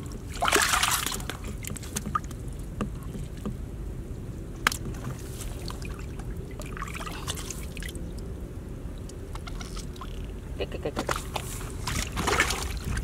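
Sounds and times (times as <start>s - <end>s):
low steady rumble: 0.0s - 13.0s
hands splashing in muddy water: 0.3s - 2.1s, 11.1s - 13.0s.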